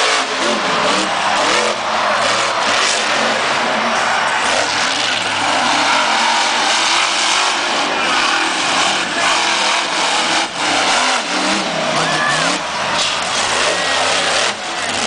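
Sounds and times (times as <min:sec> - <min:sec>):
truck engine revving loudly: 0:00.0 - 0:15.0.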